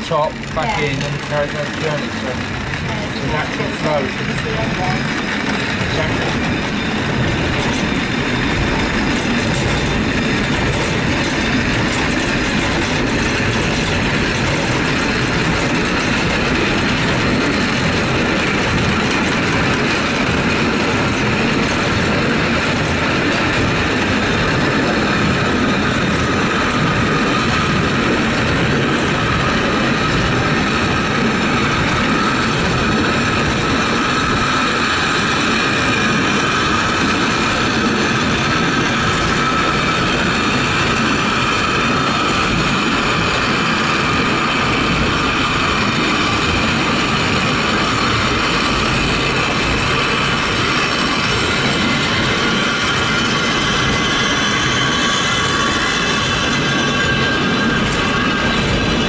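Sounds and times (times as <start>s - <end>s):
wheels rumbling on rails: 0.0s - 59.0s.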